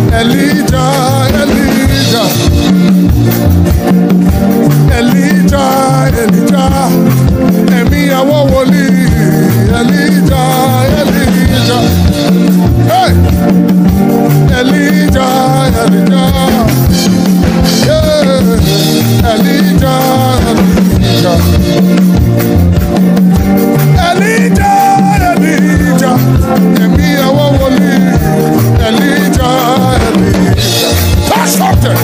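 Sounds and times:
person singing: 0.0 - 3.5, 4.7 - 13.6, 14.2 - 22.3, 23.8 - 32.0
gospel band playing: 0.0 - 32.0.

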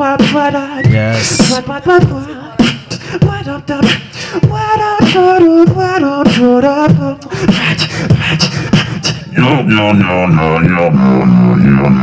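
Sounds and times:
beatboxed kick and snare: 0.0 - 9.3
hummed vocal melody: 0.0 - 12.0.

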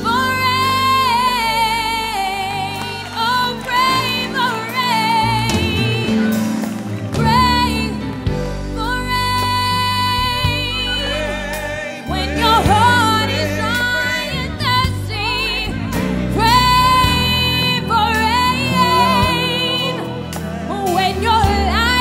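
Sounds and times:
musical accompaniment: 0.0 - 22.0
person singing with vibrato: 8.7 - 22.0.

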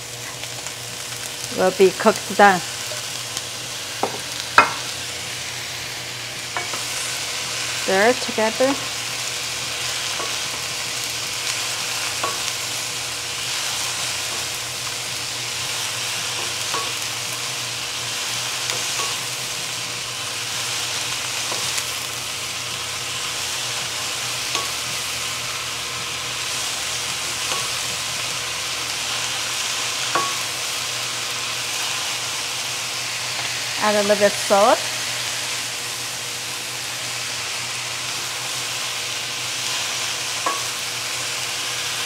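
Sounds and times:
cabbage sizzling in oil: 0.0 - 42.0
spatula knocking pan: 4.0 - 4.8, 30.1 - 30.5, 40.4 - 40.8.

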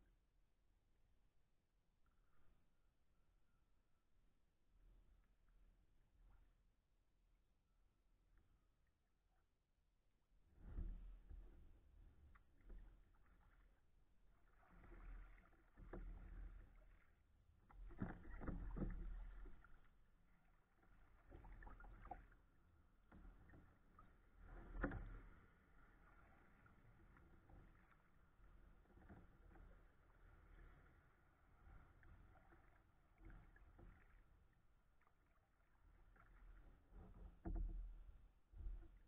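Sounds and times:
paddle strokes splashing: 10.6 - 39.0.

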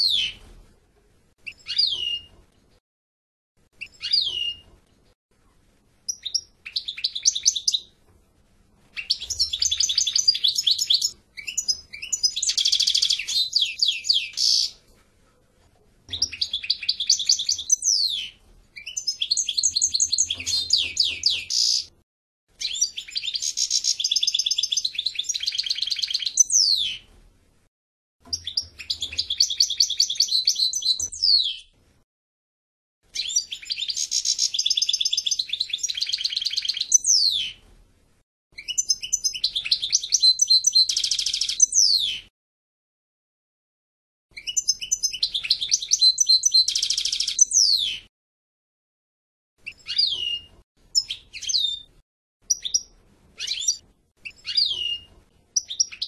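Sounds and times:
goldfinch twittering song: 22.6 - 27.0, 33.2 - 37.6, 38.6 - 42.2, 44.4 - 48.0, 49.6 - 51.9, 52.5 - 56.0.

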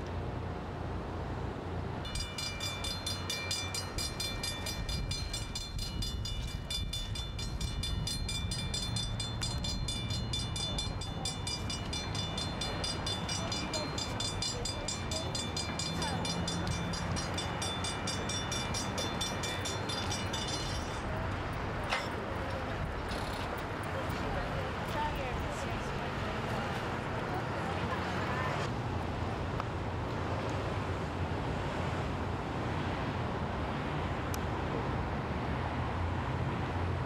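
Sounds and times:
crossing warning bell ringing: 2.1 - 22.8.

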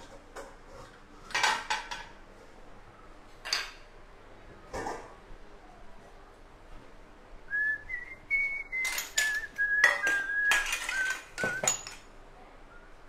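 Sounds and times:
dishes and utensils clinking: 0.0 - 2.2, 3.4 - 3.9, 8.7 - 12.1
person whistling a tune: 7.5 - 11.8.

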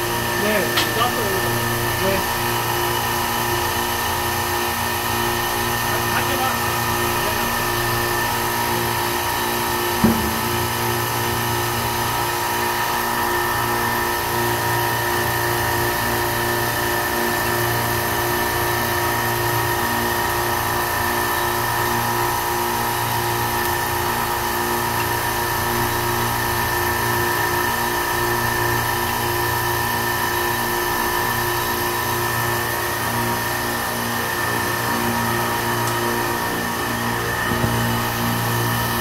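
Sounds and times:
compressor humming: 0.0 - 39.0
sharp knock: 10.0 - 11.4.

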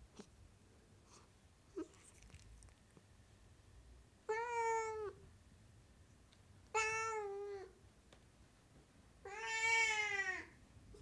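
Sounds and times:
cat meowing: 4.3 - 5.2, 6.7 - 7.7, 9.2 - 10.5.

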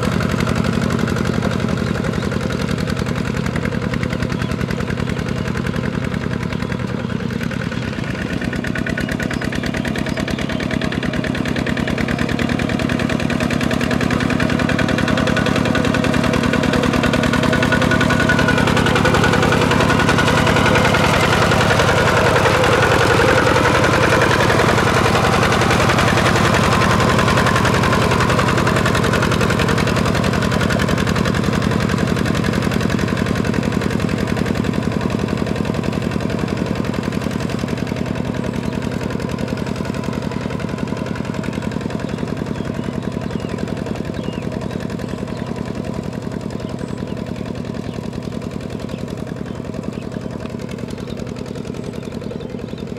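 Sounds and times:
diesel tractor engine running: 0.0 - 52.9.

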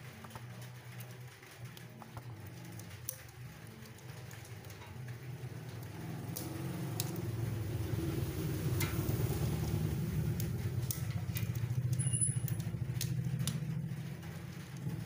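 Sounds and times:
engine humming: 0.0 - 15.0
light clicks on tin can: 8.5 - 15.0.

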